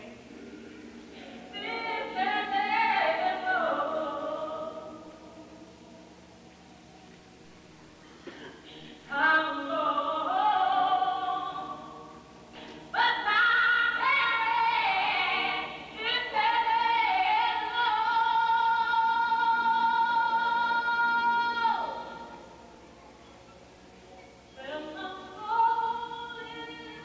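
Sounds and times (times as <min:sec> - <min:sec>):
choir singing in harmony: 0:01.4 - 0:05.0.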